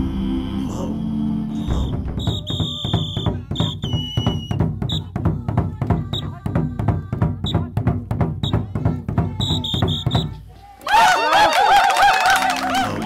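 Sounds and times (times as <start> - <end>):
shrill whistle blasts: 1.6 - 5.2, 9.4 - 10.4
fast dance drumming: 1.7 - 10.4.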